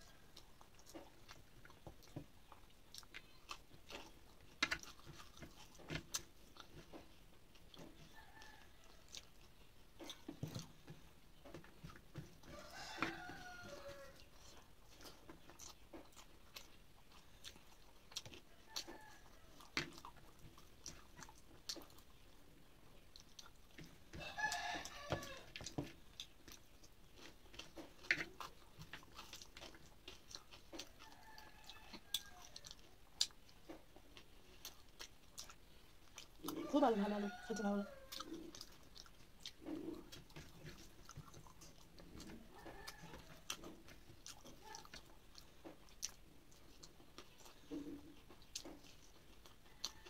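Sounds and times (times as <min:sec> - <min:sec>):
close chewing: 0:00.0 - 0:50.0
rooster crowing: 0:12.4 - 0:14.2, 0:24.2 - 0:25.5, 0:31.0 - 0:32.7, 0:36.6 - 0:38.3, 0:42.4 - 0:43.4, 0:49.6 - 0:50.0.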